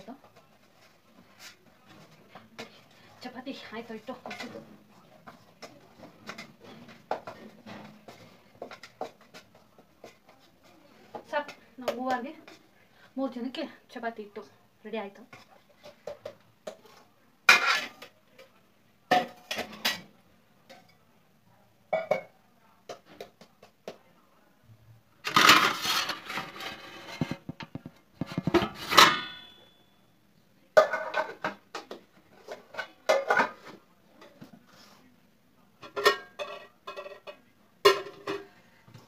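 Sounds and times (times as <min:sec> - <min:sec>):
metal pots and bowls clattering: 0:02.0 - 0:10.2, 0:17.5 - 0:18.5, 0:19.1 - 0:20.1, 0:25.2 - 0:29.8, 0:30.8 - 0:33.8, 0:35.8 - 0:38.5.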